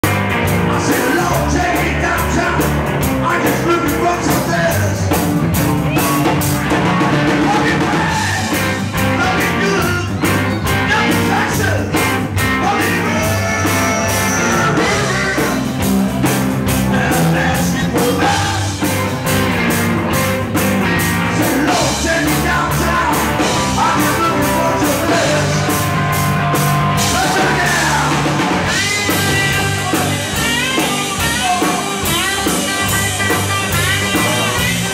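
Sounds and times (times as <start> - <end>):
blues-rock band playing: 0.0 - 34.9
harmonica through microphone: 12.5 - 16.2, 21.2 - 34.9.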